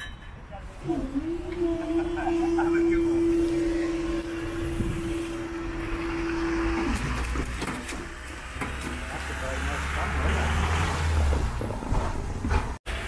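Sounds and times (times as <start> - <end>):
long steady warning tone: 0.6 - 7.4
low engine rumble: 0.6 - 12.8.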